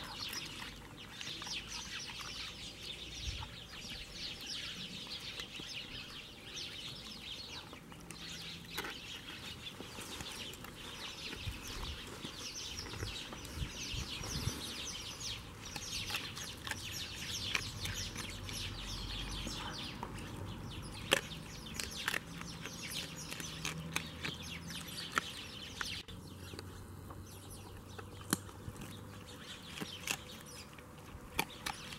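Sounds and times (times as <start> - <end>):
dog chewing and crunching bones: 0.0 - 31.9.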